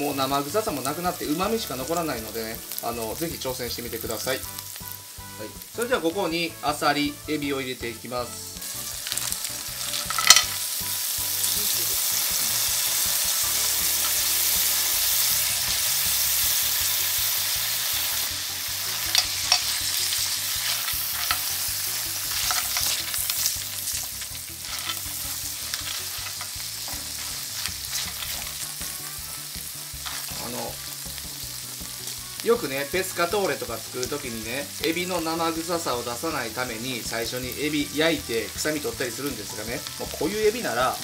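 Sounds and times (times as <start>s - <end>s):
seafood sizzling in hot oil: 0.0s - 41.0s
clams clattering into pan: 9.1s - 10.6s, 22.3s - 23.5s.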